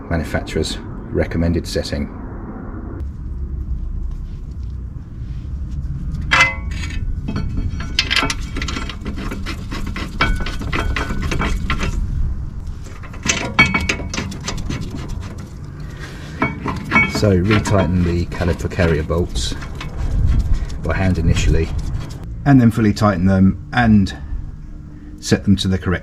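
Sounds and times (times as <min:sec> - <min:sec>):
steady low rumble: 0:00.0 - 0:26.0
metal clinking and rattling: 0:06.1 - 0:22.3.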